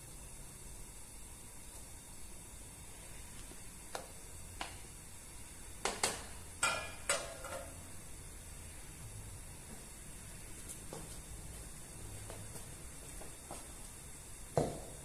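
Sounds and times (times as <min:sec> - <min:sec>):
steady low hiss: 0:00.0 - 0:15.0.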